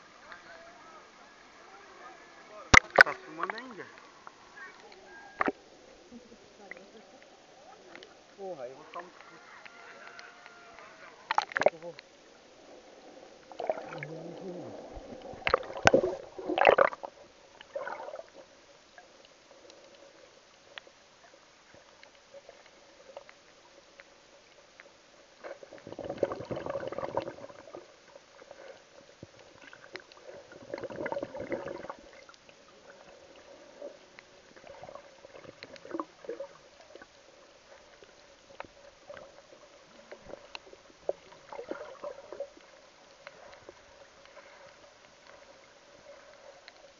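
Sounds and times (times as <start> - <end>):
faint steady hum: 0.0 - 46.9
muffled underwater sloshing: 0.0 - 46.9
small clicks: 8.9 - 12.1.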